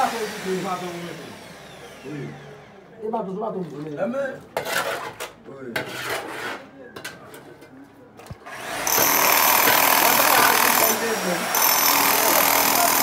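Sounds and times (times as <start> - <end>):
hammer drill boring into concrete: 0.0 - 2.6, 8.5 - 13.0.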